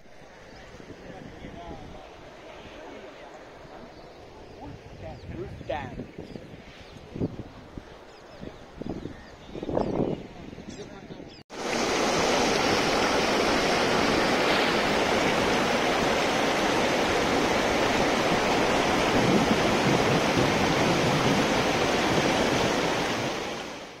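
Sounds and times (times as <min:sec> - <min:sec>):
water rushing over dam: 0:11.5 - 0:24.0.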